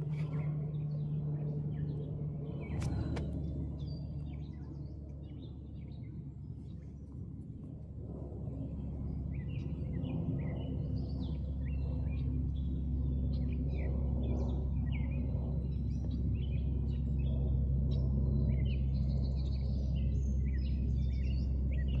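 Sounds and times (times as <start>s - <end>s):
propeller airliner droning overhead: 0.0s - 22.0s
small birds chirping: 17.9s - 22.0s.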